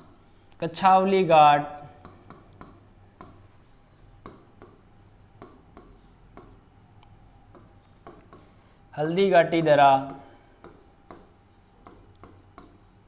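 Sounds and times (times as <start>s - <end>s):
pen tapping on screen: 2.0s - 3.4s, 7.5s - 8.5s, 9.6s - 12.9s.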